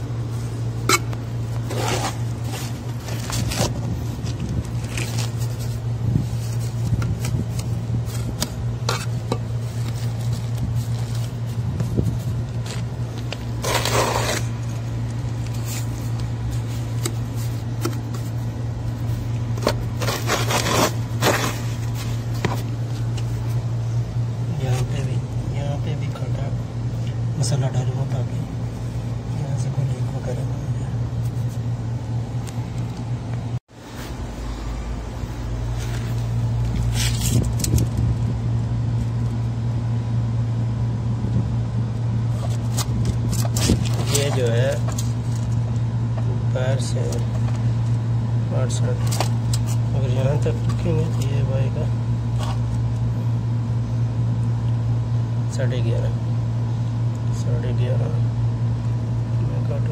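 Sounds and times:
steady low hum: 0.0 - 59.9
wet mortar scraping: 0.4 - 23.6.

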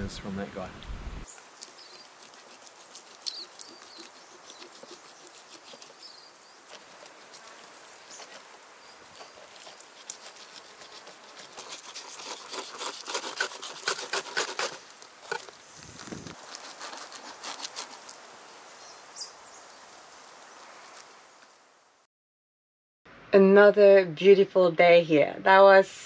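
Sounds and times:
knife cutting through fish: 1.6 - 6.1, 9.2 - 15.5, 16.4 - 18.1.

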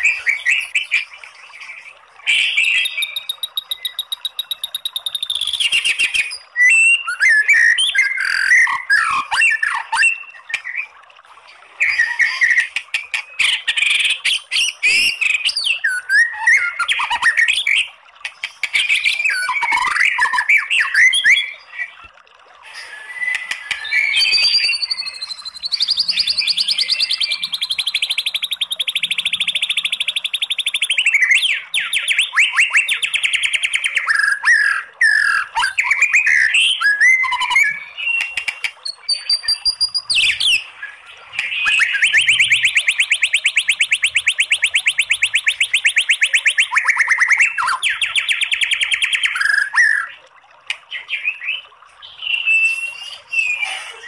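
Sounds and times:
bird singing: 0.0 - 10.9, 22.8 - 50.2, 50.9 - 54.0.

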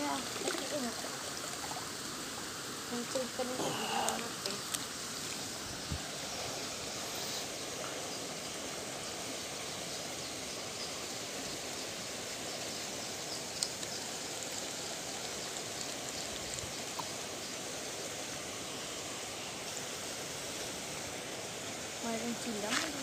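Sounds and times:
water rushing in channel: 0.0 - 9.0, 13.5 - 23.0
faint click: 13.6 - 13.9.

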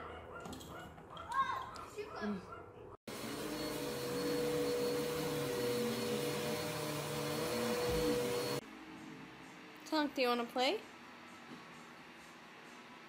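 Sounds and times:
vacuum cleaner running: 3.1 - 8.6.

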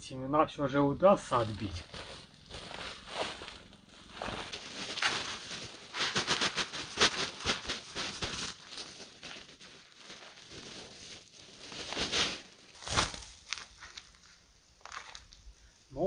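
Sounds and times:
dry debris pouring onto sheet: 4.1 - 14.1.

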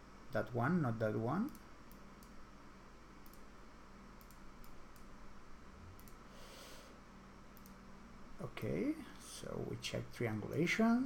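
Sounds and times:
steady low hum: 0.0 - 11.0
computer mouse clicks: 1.4 - 2.4, 3.2 - 3.5, 4.2 - 5.1, 6.0 - 6.2, 7.6 - 7.8.

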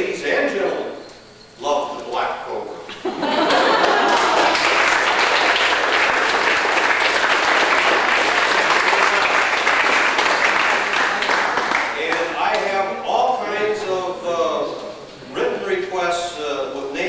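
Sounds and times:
crowd applauding: 3.4 - 12.7.

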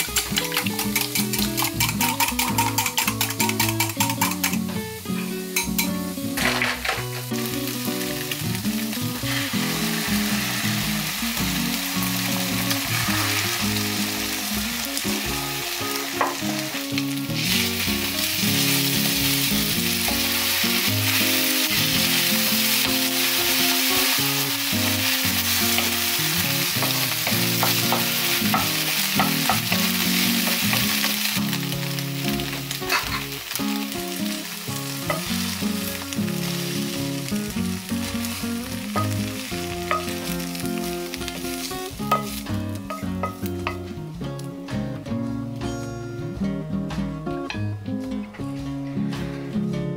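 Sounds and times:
egg sizzling in a pan: 0.0 - 4.7, 5.6 - 43.5
spatula tapping and scraping: 0.0 - 4.7.

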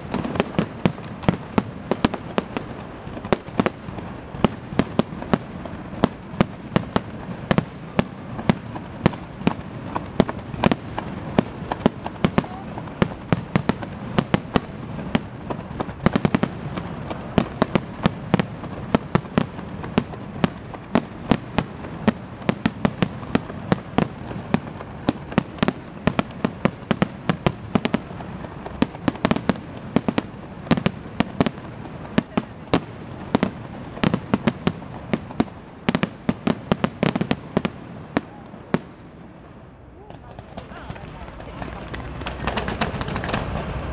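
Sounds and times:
firework bangs: 0.0 - 43.9
continuous rumble: 39.3 - 43.9.

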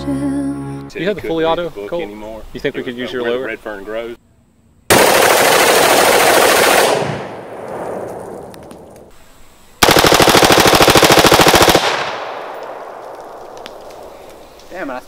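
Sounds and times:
gunshot echo: 6.8 - 9.0, 11.8 - 14.2
automatic rifle bursts: 9.8 - 14.1.

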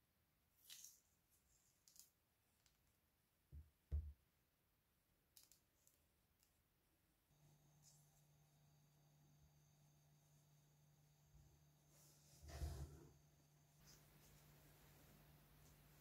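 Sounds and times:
fruit thumping on wooden table: 3.6 - 4.2.

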